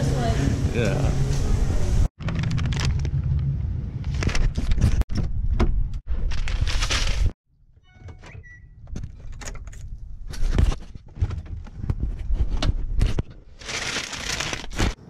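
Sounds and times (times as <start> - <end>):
paper bag rustling: 6.2 - 7.4, 13.5 - 15.0.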